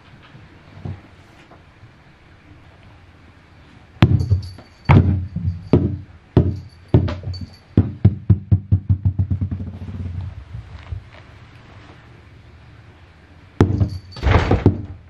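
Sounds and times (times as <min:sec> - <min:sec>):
rubber ball bouncing on wooden floor: 0:04.0 - 0:10.0.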